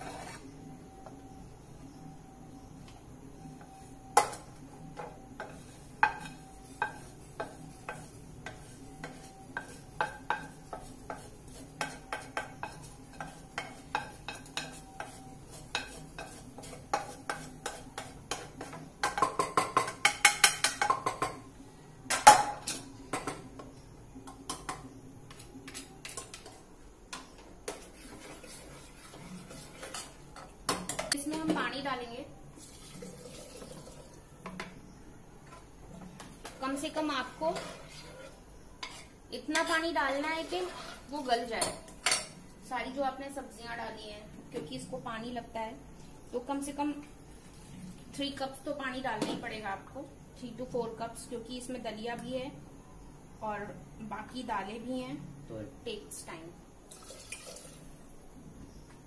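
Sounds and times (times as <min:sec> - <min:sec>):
metal spoon scraping a pan: 0:00.0 - 0:00.6, 0:05.0 - 0:21.3, 0:27.7 - 0:31.2, 0:36.4 - 0:42.4.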